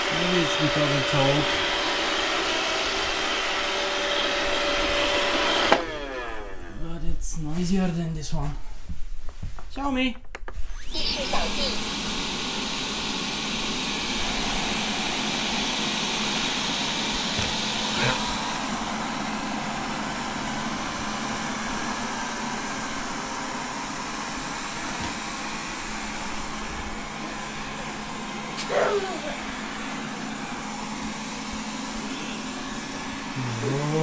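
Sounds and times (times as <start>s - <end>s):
robot vacuum whirring: 10.7s - 34.0s.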